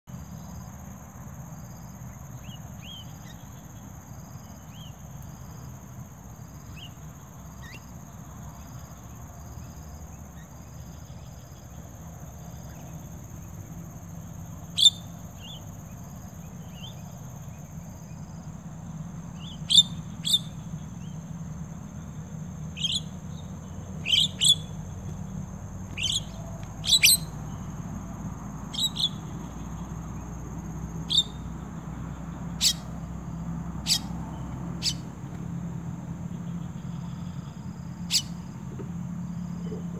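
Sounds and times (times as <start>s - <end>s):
high insect drone: 0.1s - 39.9s
starlings calling: 6.6s - 11.8s, 12.4s - 21.7s, 22.6s - 35.4s, 36.3s - 38.6s.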